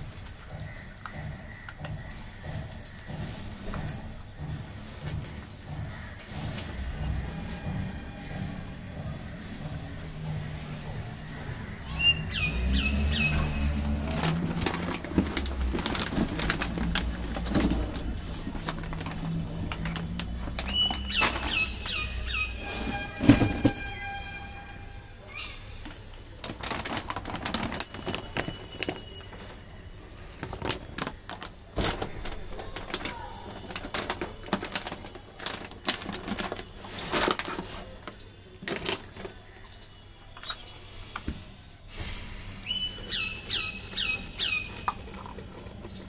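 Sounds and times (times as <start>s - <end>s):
puppy crunching kibble: 43.1s - 46.0s
kibble clicking on metal bowl: 43.4s - 46.0s.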